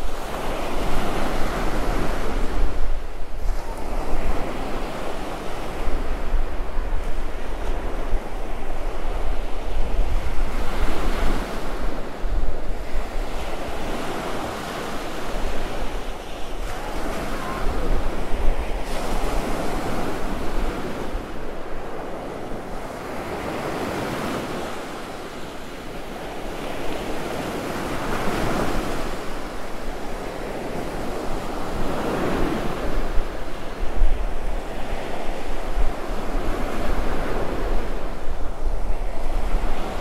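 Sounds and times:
wind on microphone: 0.0 - 40.0
surf breaking on beach: 13.0 - 21.4.

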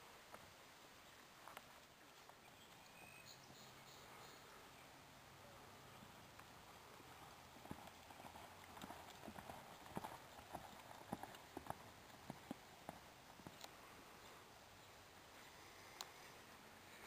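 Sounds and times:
horse hoofbeats cantering: 7.1 - 13.6.

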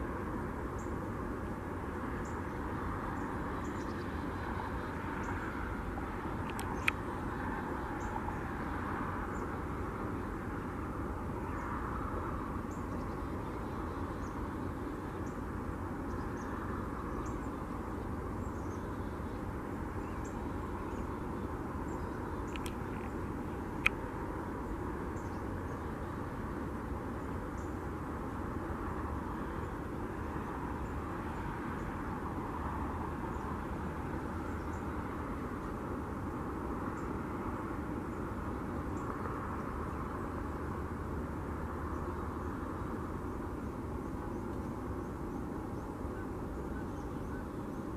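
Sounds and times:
distant traffic roar: 0.0 - 47.9.

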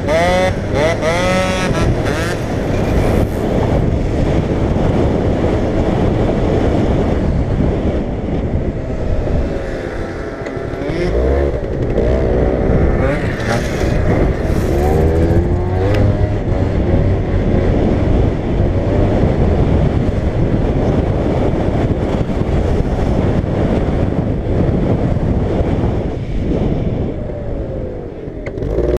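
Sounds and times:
scooter engine revving: 0.0 - 3.7, 9.0 - 18.2
wind buffeting microphone: 0.0 - 29.0.

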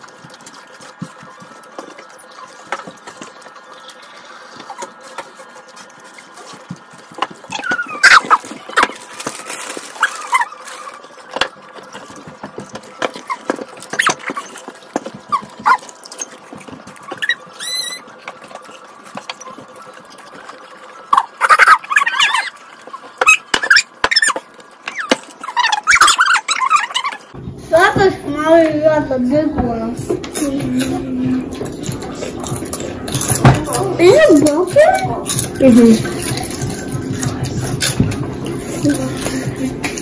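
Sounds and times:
chewing and munching: 0.0 - 27.4, 30.0 - 40.0.

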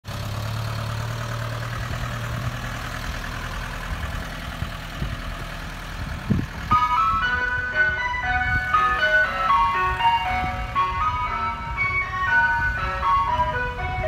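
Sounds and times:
van engine idling: 0.0 - 14.0
ice cream van chimes tune: 6.5 - 14.0.

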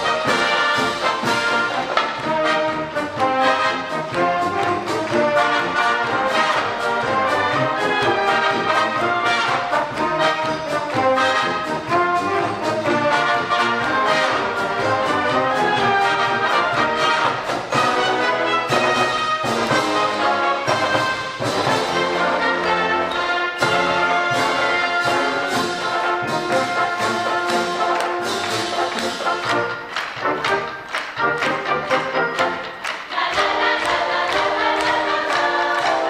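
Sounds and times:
marching band brass: 0.0 - 36.0
marching drums: 0.0 - 36.0.

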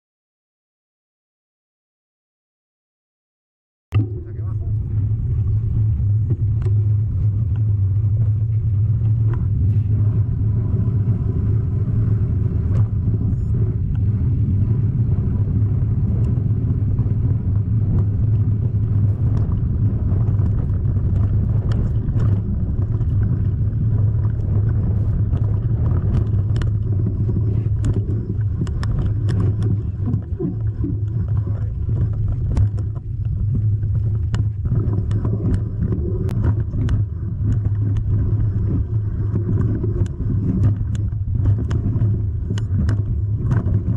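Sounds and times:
low vehicle rumble: 3.9 - 43.9.

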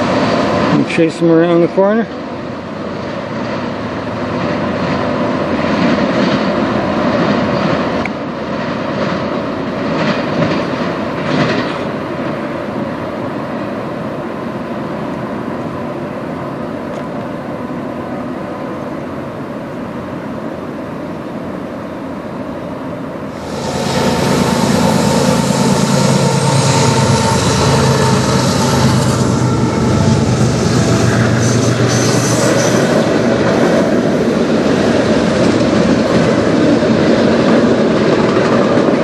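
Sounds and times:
train clatters: 0.0 - 13.2, 23.3 - 39.0
train wheels on rails: 0.0 - 39.0.

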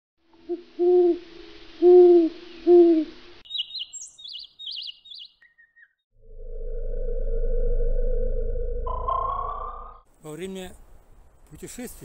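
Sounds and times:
owl hooting: 0.4 - 8.0
small bird chirping: 3.4 - 6.0
faint hiss: 10.1 - 12.0.

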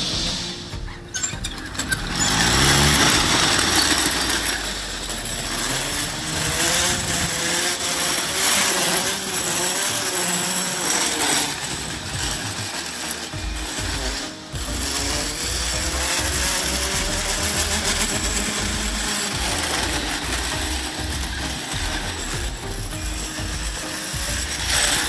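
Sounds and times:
steel rollers rattling: 0.0 - 25.0.

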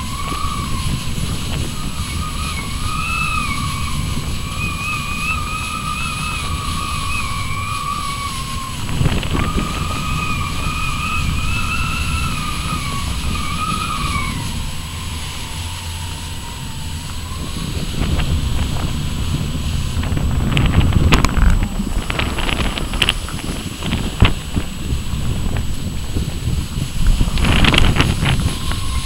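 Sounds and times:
thin wavering whistle: 0.0 - 21.4, 26.4 - 29.0
wind buffeting microphone: 0.0 - 29.0.

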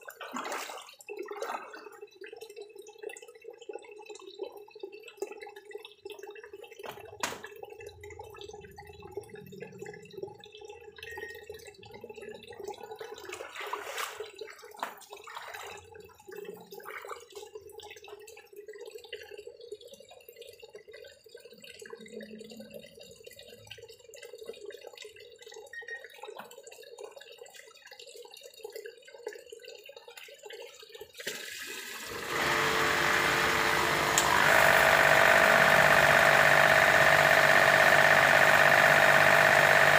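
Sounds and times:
water trickling and dripping: 0.0 - 32.2
motor running: 32.1 - 39.9.

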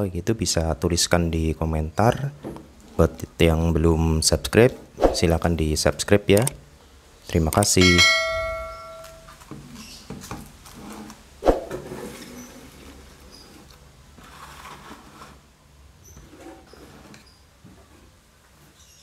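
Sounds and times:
notification chime: 7.8 - 9.3
plastic and cardboard rustling: 9.2 - 19.0.

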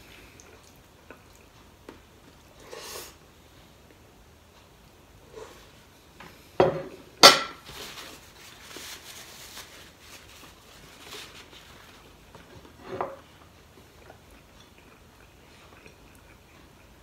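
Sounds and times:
tissue paper rustling: 7.6 - 12.0.

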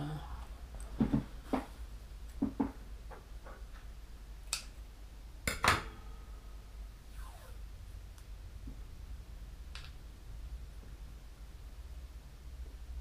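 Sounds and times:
steady low hum: 0.0 - 13.0
objects knocking on a tabletop: 1.0 - 1.7, 2.4 - 3.6.

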